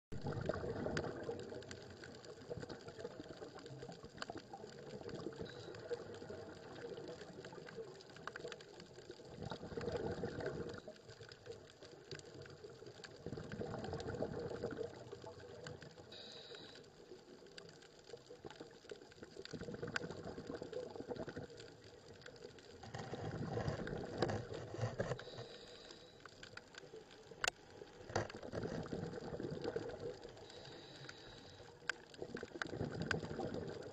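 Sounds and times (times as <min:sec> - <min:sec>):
exhaled bubbles from regulator: 0:00.1 - 0:03.6, 0:09.3 - 0:10.9, 0:13.2 - 0:16.2, 0:19.5 - 0:21.6, 0:28.2 - 0:30.9, 0:32.2 - 0:33.9
steady underwater hiss: 0:15.3 - 0:17.8, 0:22.7 - 0:32.2.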